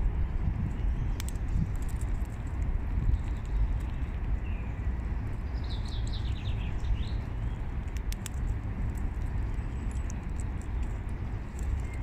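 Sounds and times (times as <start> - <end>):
low outdoor rumble: 0.0 - 12.0
songbird chirping: 3.1 - 7.7.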